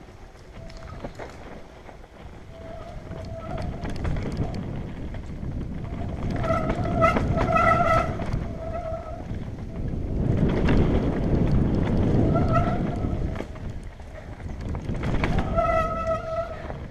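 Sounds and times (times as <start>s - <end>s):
bike tyres rumbling on dirt: 0.0s - 16.9s
high steady bike whine: 0.0s - 16.9s
wind on microphone: 0.0s - 16.9s
rattling knocks over bumps: 0.9s - 9.2s.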